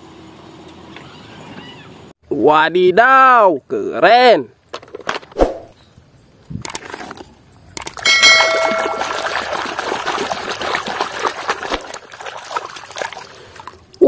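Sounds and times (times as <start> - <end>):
ringing ding: 8.1 - 9.5
water sloshing in a tub: 8.2 - 14.0.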